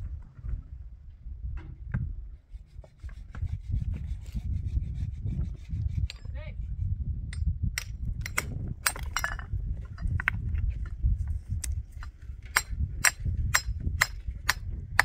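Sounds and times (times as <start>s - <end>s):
hammer striking stone: 12.5s - 14.6s.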